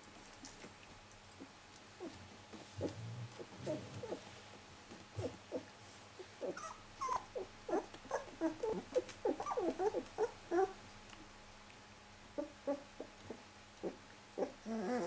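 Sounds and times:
puppies whimpering: 6.4 - 10.8, 13.8 - 15.0.

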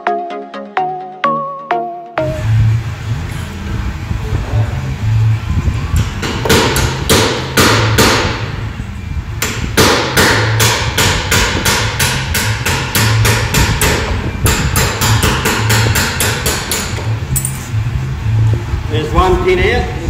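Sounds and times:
hammer striking steel punch: 6.2 - 8.4, 9.4 - 17.6.

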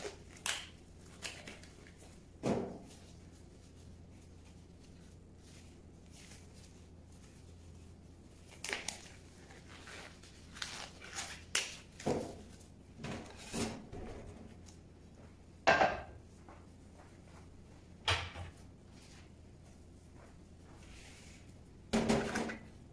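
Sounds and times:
knocks on steel worktop: 15.7 - 16.1.

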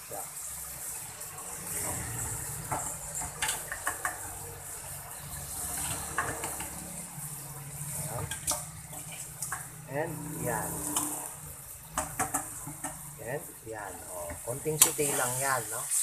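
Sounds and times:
meat sizzling in a wok: 0.0 - 16.0
utensil clicking against pan: 2.7 - 4.3, 8.2 - 9.7, 10.8 - 13.0.

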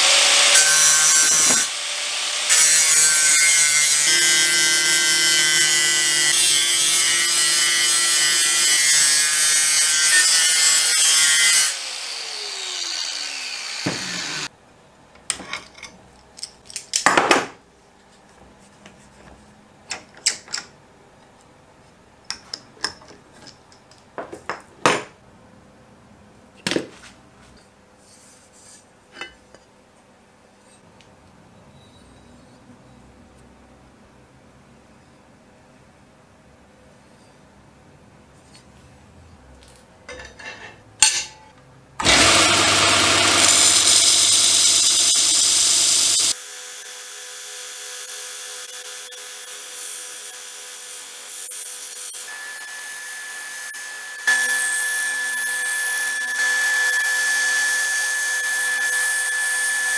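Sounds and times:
angle grinder grinding steel: 0.0 - 14.5, 42.0 - 46.4
tools clicking and knocking: 19.9 - 20.8
grinder motor winding down: 42.0 - 46.4.

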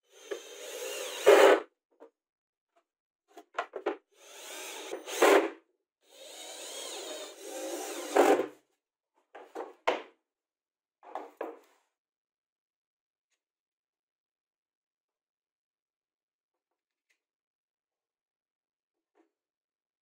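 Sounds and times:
cordless drill driving into board: 0.1 - 1.6, 4.2 - 8.5.

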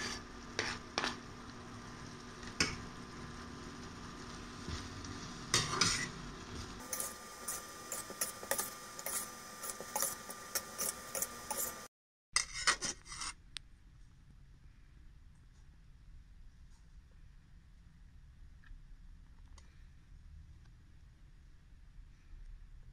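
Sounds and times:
metal spatula scraping frying pan: 0.0 - 1.2, 5.5 - 6.2, 6.8 - 13.4.

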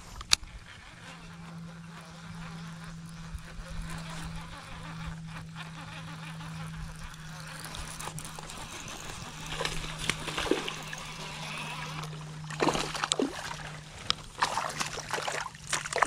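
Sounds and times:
steady low hum: 0.0 - 16.0
water sloshing against kayak hull: 7.6 - 16.0
short knocks and splashes: 9.4 - 11.2, 12.0 - 16.0.

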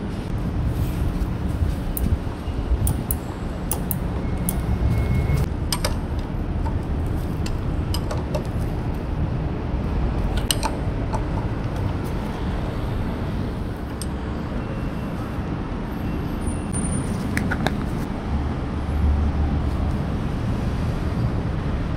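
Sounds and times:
low outdoor rumble: 0.0 - 16.0
metallic clicks of hand tools: 2.8 - 4.6, 10.3 - 11.5.

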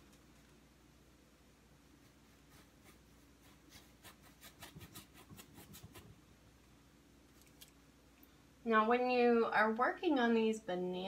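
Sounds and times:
paintbrush dabbing on canvas: 1.8 - 6.2.

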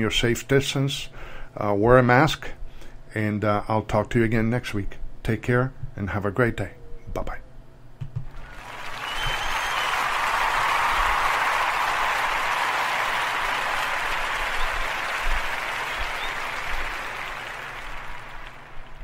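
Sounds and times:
crowd applause: 8.4 - 19.0.

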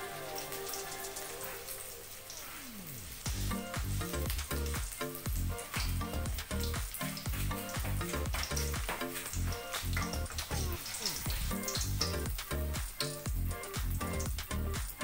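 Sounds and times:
cutlet sizzling in hot oil: 0.0 - 15.0
music with thumping beat: 3.3 - 10.7, 11.3 - 15.0.

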